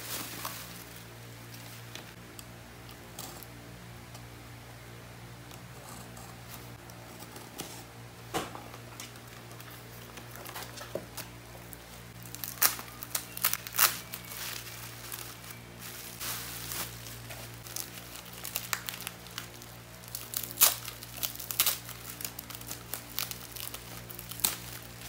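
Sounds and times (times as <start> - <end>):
bubble wrap crinkling: 0.0 - 2.2, 9.1 - 25.0.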